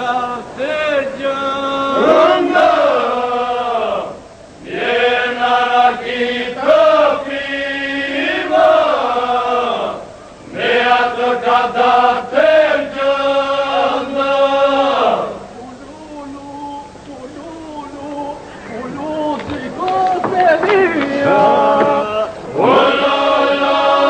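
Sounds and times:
men singing polyphonic folk song: 0.0s - 24.0s.

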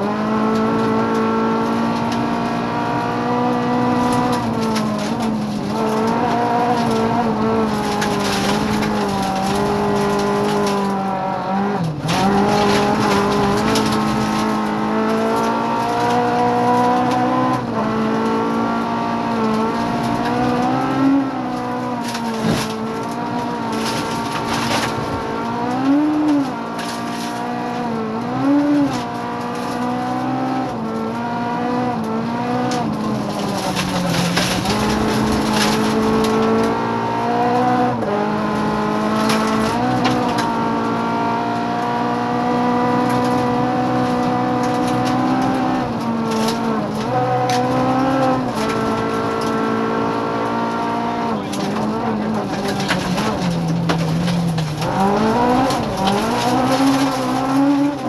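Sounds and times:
rally car engine revving: 0.0s - 58.0s
short clatters: 32.7s - 36.7s, 51.4s - 58.0s.

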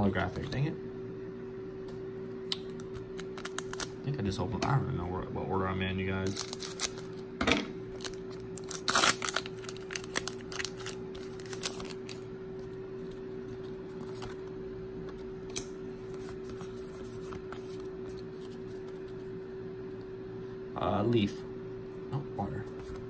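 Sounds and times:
faint steady hum: 0.0s - 23.0s
cards being handled: 2.6s - 3.9s, 6.2s - 7.2s, 8.0s - 19.2s
foil wrapper crinkling: 3.2s - 3.9s, 6.2s - 7.2s, 7.9s - 12.2s.

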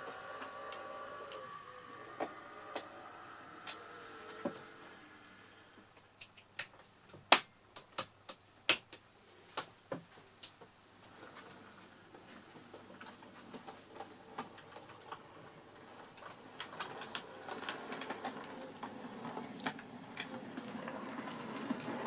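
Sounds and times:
model train clicking and rattling: 0.0s - 4.6s, 11.1s - 22.0s
low running sound of model train: 0.0s - 6.0s, 10.9s - 22.0s.

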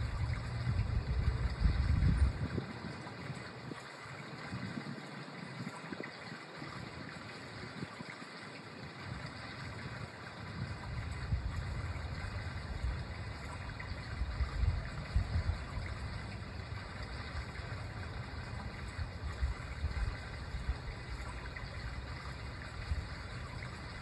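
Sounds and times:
low rumbling: 0.0s - 2.7s.

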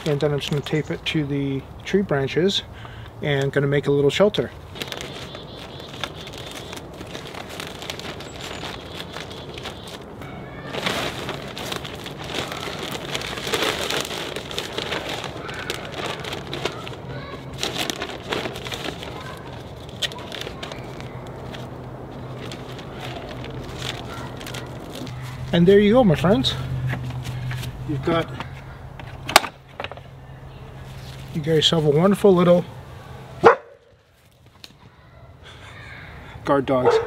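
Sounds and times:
plastic bag rustling and crinkling: 4.6s - 26.4s.

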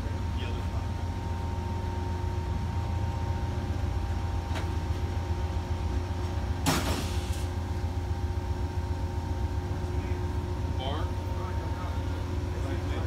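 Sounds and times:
train engine humming: 0.0s - 13.0s.

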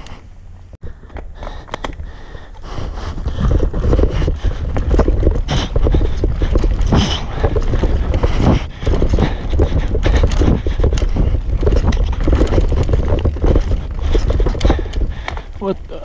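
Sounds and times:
mountain bike rattling over roots: 1.0s - 16.0s
wind rumbling on microphone: 1.8s - 16.0s.

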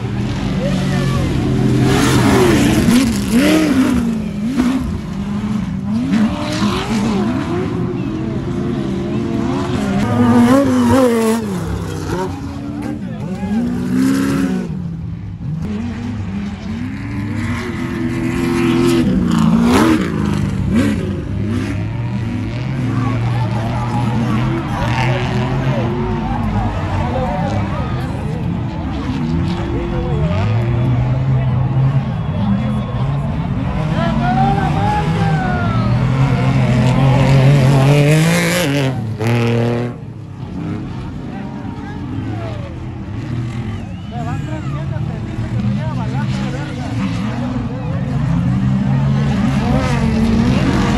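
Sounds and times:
buggy engine revving: 0.0s - 50.9s.

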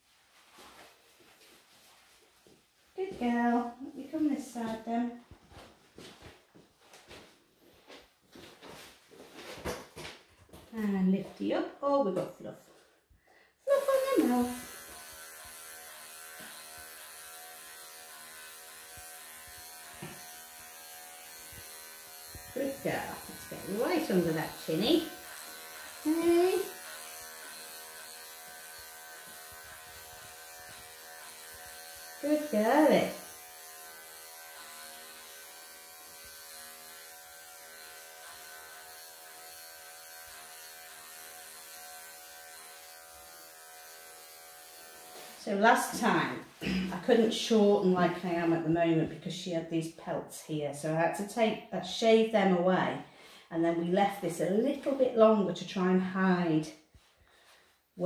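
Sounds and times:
pet clippers buzzing: 13.7s - 47.1s.

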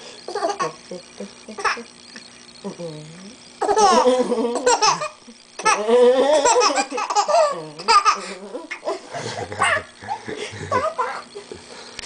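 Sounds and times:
baby laughing: 3.6s - 11.3s.

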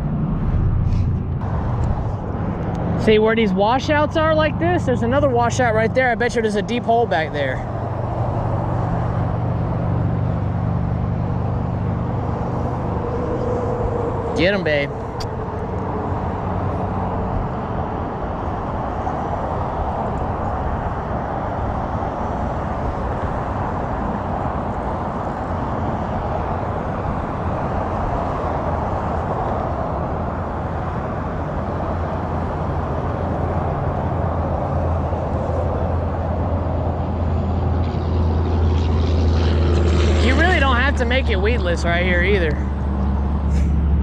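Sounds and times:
deep low rumble: 0.0s - 2.9s
highway traffic roar: 0.0s - 44.0s.

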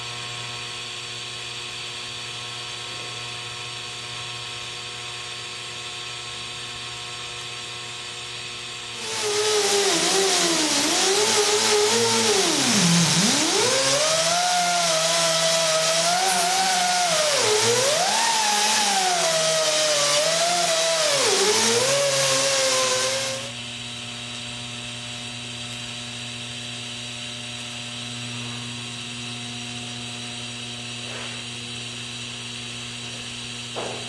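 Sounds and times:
welder electrical hum: 0.0s - 34.0s
air tool whining against steel: 9.0s - 23.6s.

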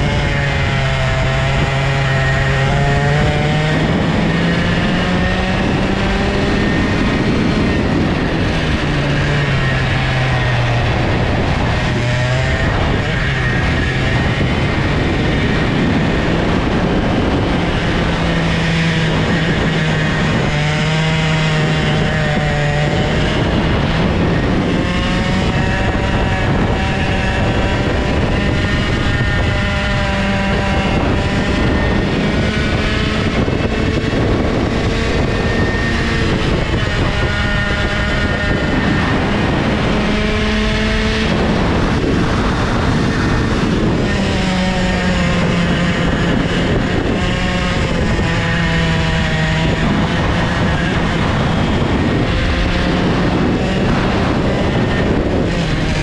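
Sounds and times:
kart engine revving: 0.0s - 56.0s.

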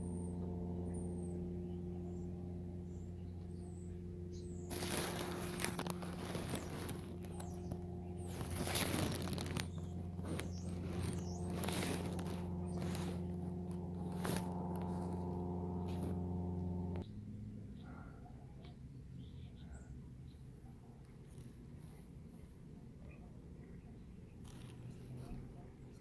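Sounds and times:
steady low hum: 0.0s - 18.4s
plastic bag crinkling: 4.7s - 17.0s.

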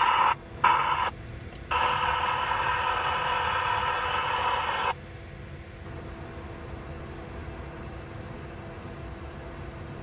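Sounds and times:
static-filled radio audio: 0.0s - 1.1s, 1.7s - 5.0s
low rumble of train and traffic: 0.0s - 10.0s.

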